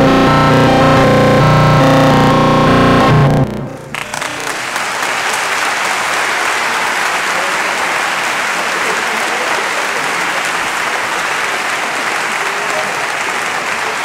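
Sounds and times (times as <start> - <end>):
audience applauding: 1.8 - 14.0.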